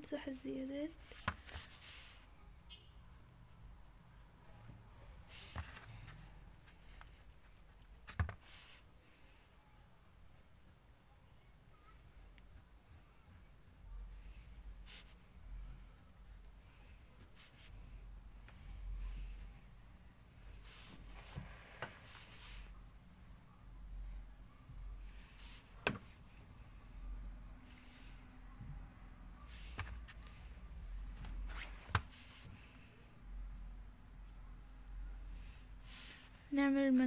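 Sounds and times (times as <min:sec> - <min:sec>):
pencil scratching on paper: 0:00.9 - 0:02.3, 0:02.9 - 0:04.3, 0:05.3 - 0:23.2.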